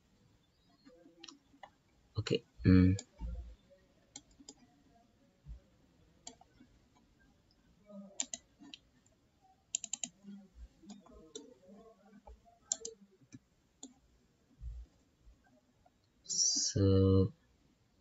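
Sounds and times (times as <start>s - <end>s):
mouse and keyboard clicks: 8.2s - 8.8s, 9.7s - 10.2s, 12.3s - 14.0s.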